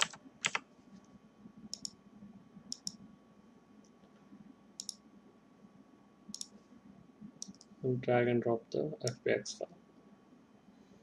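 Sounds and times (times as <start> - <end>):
faint steady hum: 0.0 - 11.0
computer mouse clicking: 1.7 - 2.0, 2.7 - 3.0, 4.8 - 5.0, 6.3 - 6.6, 7.4 - 7.8.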